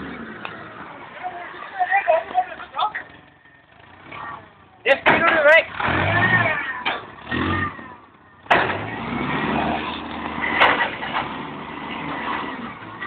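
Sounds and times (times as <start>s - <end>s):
bang: 8.4s - 9.0s, 10.4s - 11.4s.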